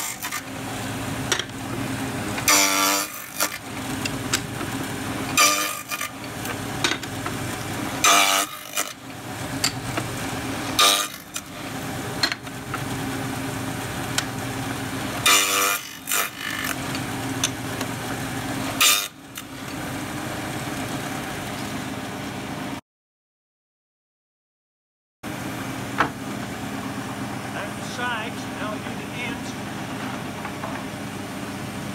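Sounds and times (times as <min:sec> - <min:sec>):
saw blade cutting wood: 0:00.0 - 0:00.6, 0:02.4 - 0:09.0, 0:09.6 - 0:12.4, 0:15.2 - 0:17.6, 0:18.7 - 0:19.5
table saw running: 0:00.0 - 0:22.3.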